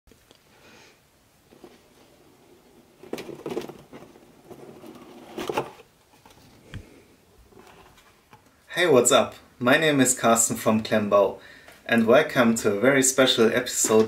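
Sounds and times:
cardboard scraping rustles: 0:01.5 - 0:06.7, 0:07.5 - 0:08.2.

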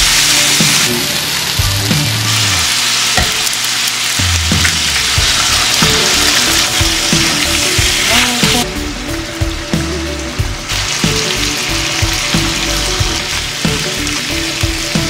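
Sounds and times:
food sizzling in skillet: 0:00.0 - 0:15.0.

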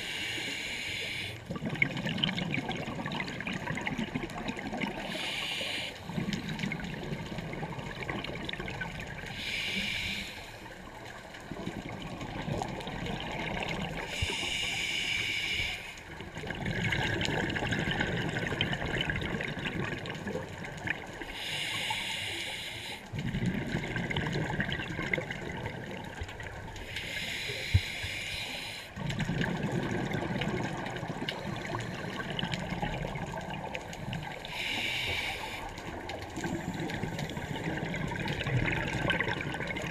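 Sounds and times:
regulator hissing inhalations: 0:00.0 - 0:01.4, 0:05.0 - 0:06.2, 0:09.3 - 0:10.7, 0:14.1 - 0:16.0, 0:21.3 - 0:23.1, 0:26.9 - 0:29.0, 0:34.4 - 0:35.8
exhaled bubbles rumbling: 0:01.5 - 0:05.2, 0:06.0 - 0:09.4, 0:10.8 - 0:14.4, 0:16.1 - 0:21.2, 0:23.1 - 0:26.9, 0:29.0 - 0:34.6, 0:35.7 - 0:39.9.

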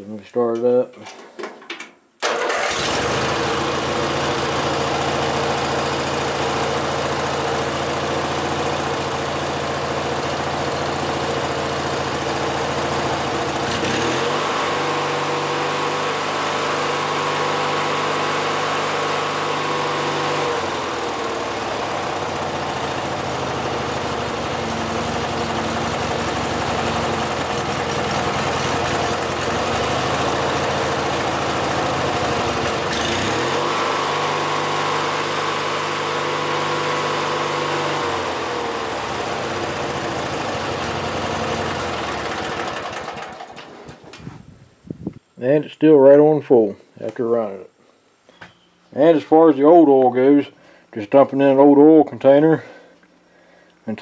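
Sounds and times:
lawn mower engine revving: 0:02.2 - 0:44.2.

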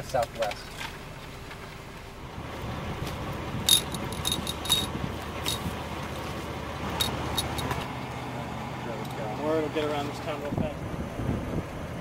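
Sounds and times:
wind rumble on microphone: 0:02.2 - 0:07.8, 0:10.4 - 0:12.0.

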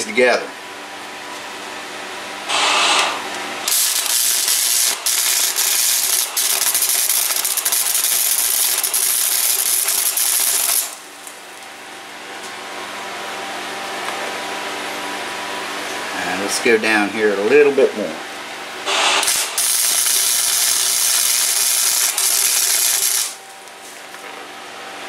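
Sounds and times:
fan humming: 0:00.0 - 0:25.0
welder arc crackling: 0:02.5 - 0:11.7, 0:18.9 - 0:24.3.

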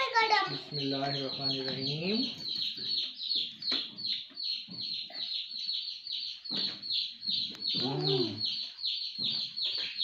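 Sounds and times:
high bird chirps: 0:00.0 - 0:10.0.

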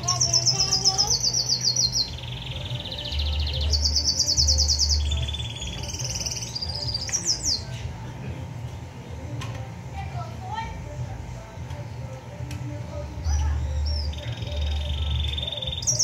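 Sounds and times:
songbird trilling: 0:00.0 - 0:07.7, 0:13.2 - 0:16.0.

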